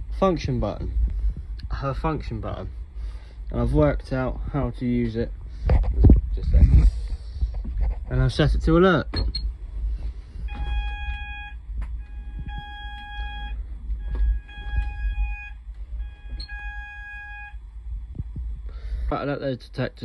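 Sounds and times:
pulsed fire alarm tone: 10.2 - 17.6.

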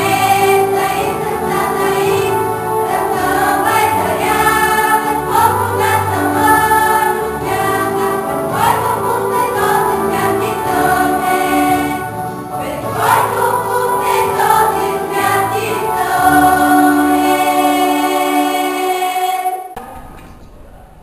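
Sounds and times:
choir singing sustained chords: 0.0 - 19.8.

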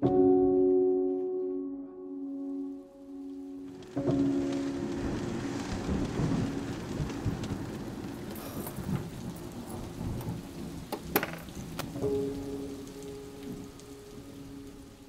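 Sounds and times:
steady rain: 2.8 - 15.0
thunder rumbling: 3.1 - 15.0.

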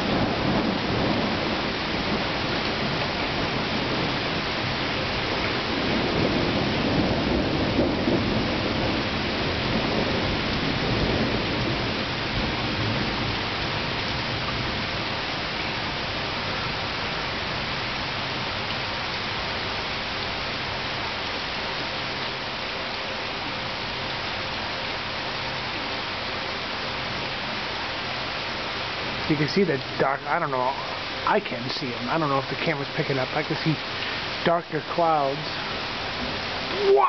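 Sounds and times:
thunder rumbling: 0.0 - 15.3
steady rain falling: 0.0 - 37.0.

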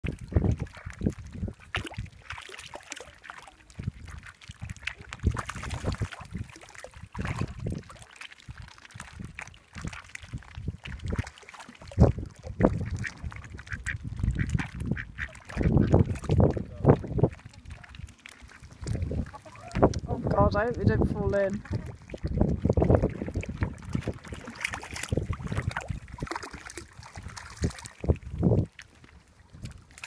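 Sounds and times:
ducks quacking: 12.8 - 16.1, 18.4 - 19.9.

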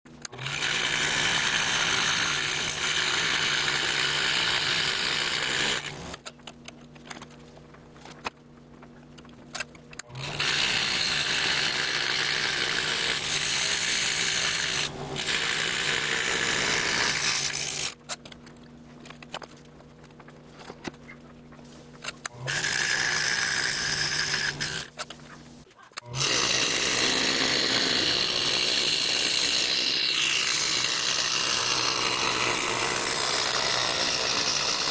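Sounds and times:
low steady hum: 0.1 - 27.0
scroll saw cutting plywood: 0.2 - 6.5, 9.6 - 18.3, 22.0 - 25.4, 26.0 - 34.9.

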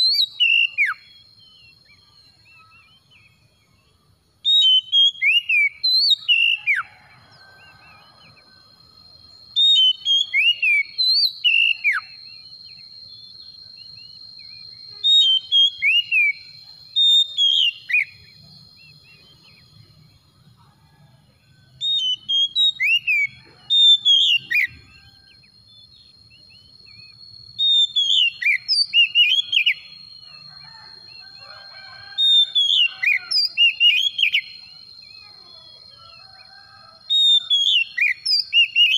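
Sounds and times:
bird singing whistled phrases: 0.0 - 3.4, 4.4 - 6.9, 9.5 - 19.3, 21.8 - 25.1, 26.3 - 30.0, 32.2 - 35.3, 37.2 - 38.9
faint steady high tone: 0.0 - 4.0, 33.4 - 36.3.

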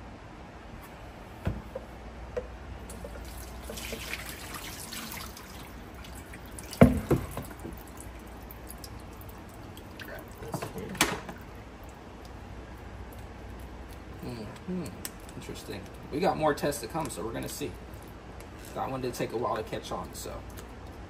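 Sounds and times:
liquid dripping through a strainer: 2.8 - 14.0.

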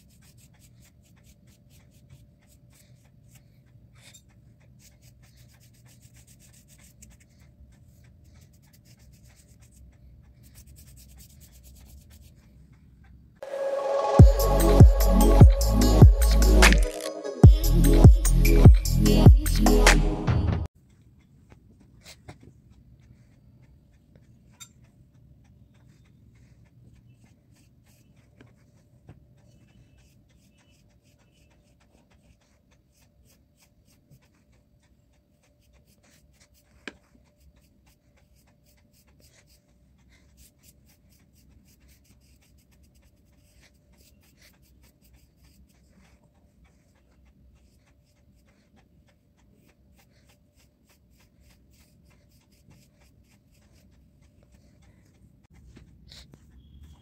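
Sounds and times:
paintbrush strokes on paper: 0.0 - 19.9, 20.7 - 57.0
small ticks: 29.4 - 33.2, 51.0 - 57.0.

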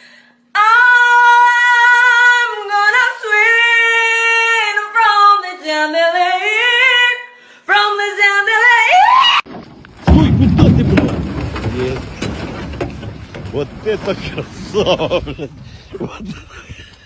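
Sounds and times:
woman singing unaccompanied: 0.6 - 9.0.

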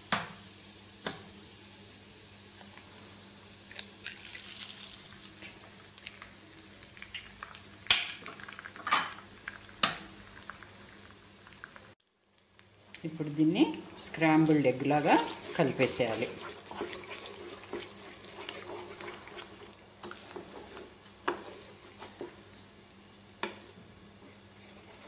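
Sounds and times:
oil sizzling in a frying pan: 0.1 - 25.0
eggs cracking: 3.7 - 11.9.

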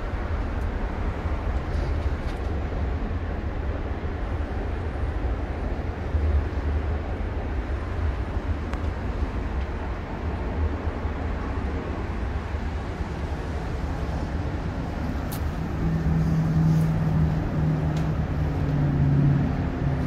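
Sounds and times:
low outdoor rumble: 0.0 - 20.0
passing vehicle hum: 0.0 - 20.0.

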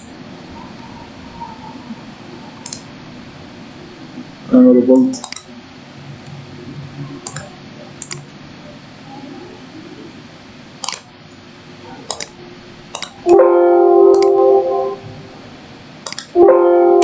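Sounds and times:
computer mouse clicking: 2.6 - 2.9, 5.0 - 5.5, 7.2 - 8.3, 10.8 - 11.1, 12.1 - 13.4, 16.0 - 16.4
computer alert chime: 13.2 - 15.5, 16.4 - 17.0.

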